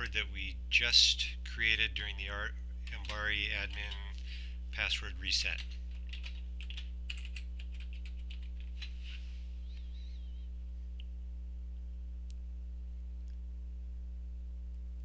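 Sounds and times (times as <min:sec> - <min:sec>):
low electrical hum: 0:00.0 - 0:15.0
computer keyboard typing: 0:02.8 - 0:04.1, 0:05.4 - 0:08.9.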